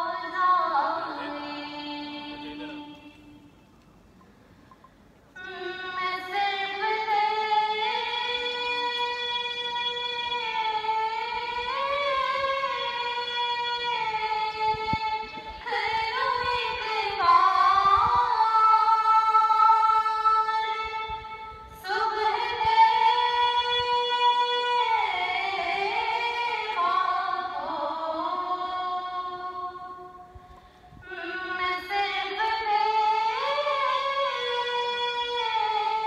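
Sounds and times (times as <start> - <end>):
person singing over loudspeaker: 0.0 - 3.4.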